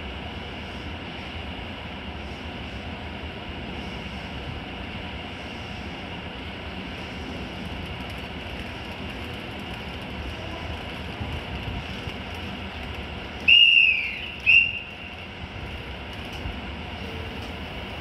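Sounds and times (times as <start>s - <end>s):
electric train humming: 0.0s - 18.0s
shrill whistle blasts: 13.5s - 14.9s.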